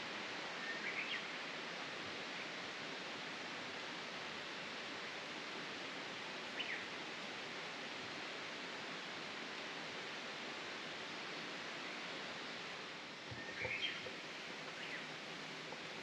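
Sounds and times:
bird chirping: 13.3 - 14.1.

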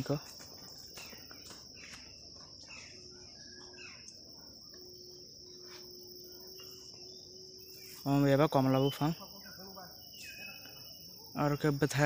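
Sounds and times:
insect chorus drone: 0.0 - 12.0.

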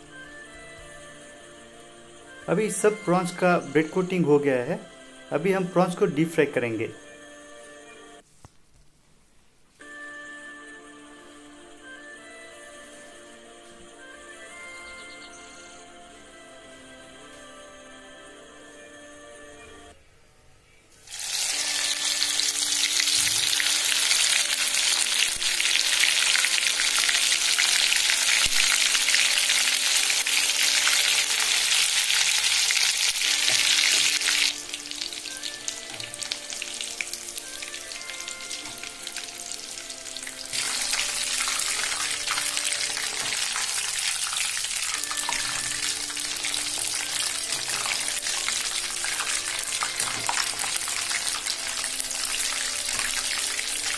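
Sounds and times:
prawns deep-frying in hot oil: 21.0 - 53.9.

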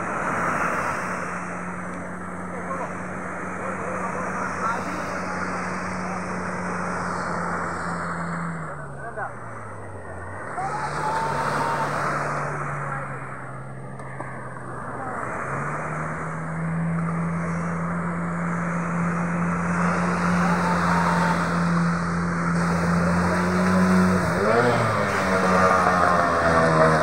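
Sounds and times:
boat motor running: 0.0 - 27.0
waves breaking: 0.0 - 27.0.

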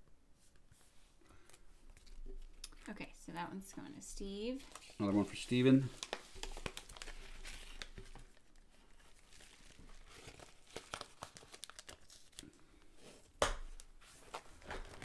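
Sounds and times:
plastic packaging crinkling: 4.6 - 12.6.

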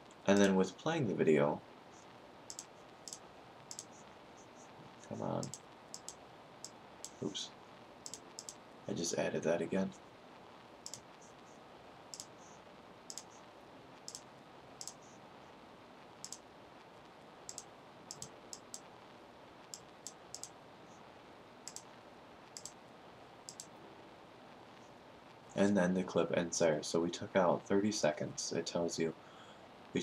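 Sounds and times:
faint room hiss: 0.0 - 30.0
computer mouse clicking: 2.5 - 3.9, 5.4 - 7.2, 8.0 - 8.6, 10.8 - 11.0, 12.1 - 12.3, 13.1 - 13.4, 14.1 - 15.0, 16.2 - 16.4, 17.5 - 18.8, 19.7 - 20.6, 21.6 - 21.9, 22.6 - 22.8, 23.5 - 23.7.

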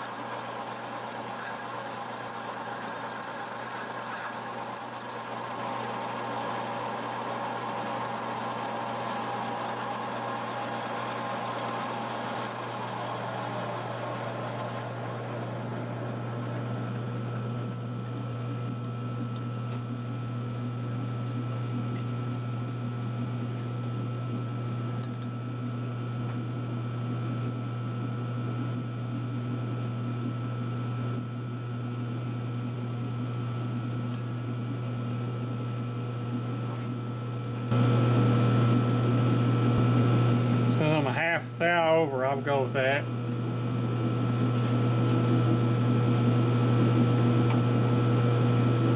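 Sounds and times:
metal lathe cutting: 0.0 - 15.0.

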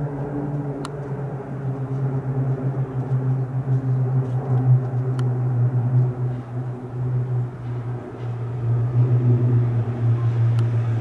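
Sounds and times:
propeller aircraft drone: 0.0 - 11.0.

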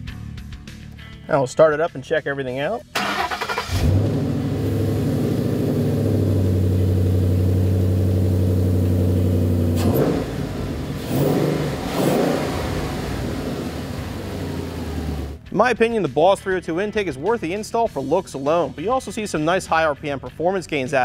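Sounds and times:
car engine idling and revving: 3.0 - 15.4.

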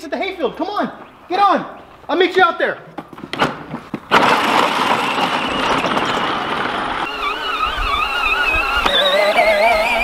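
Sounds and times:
plastic wheels rumbling: 2.9 - 10.0
wavering whine: 6.8 - 10.0.

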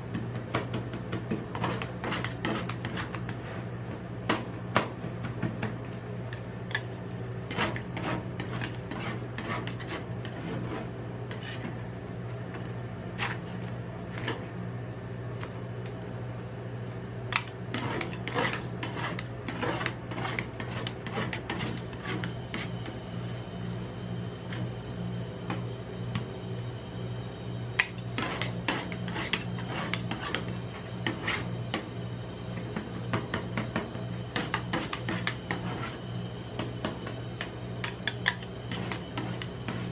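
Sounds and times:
steady low hum: 0.0 - 39.9
metal spatulas scraping cold plate: 6.7 - 11.7, 17.4 - 22.7, 27.8 - 31.5, 34.4 - 36.0, 37.8 - 39.9.

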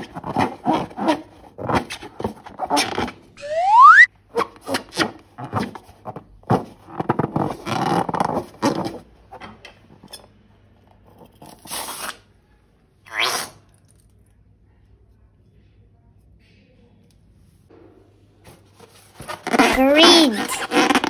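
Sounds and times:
rising balloon squeak: 3.4 - 4.1, 19.3 - 21.0.

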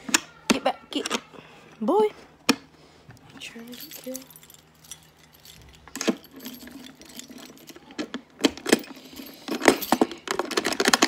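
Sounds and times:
keys jangling: 3.5 - 8.0, 8.6 - 10.8.

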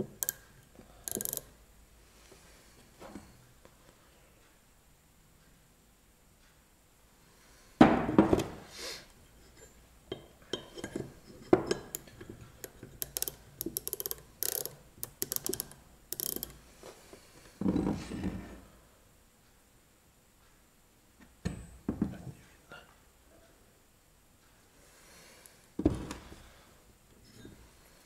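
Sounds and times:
small metal clicks and clinks: 0.2 - 1.5, 11.7 - 16.6.

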